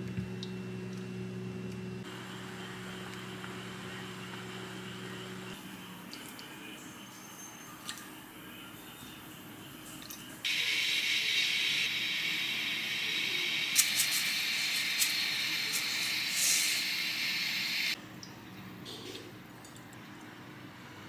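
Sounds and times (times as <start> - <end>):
steady hiss: 10.5 - 18.0.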